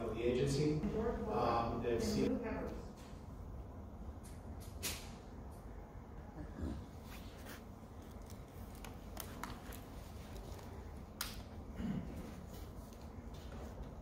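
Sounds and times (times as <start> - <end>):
small clicks and handling noises: 8.0 - 11.5.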